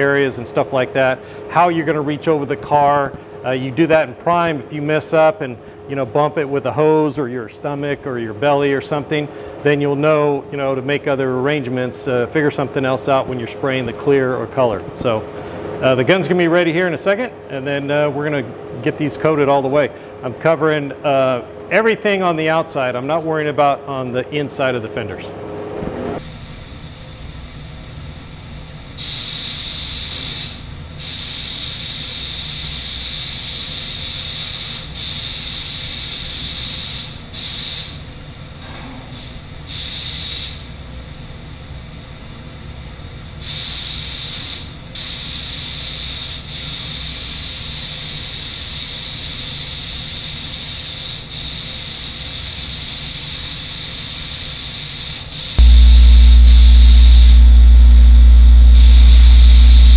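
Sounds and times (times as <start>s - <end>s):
loud low machine hum: 55.6s - 59.9s.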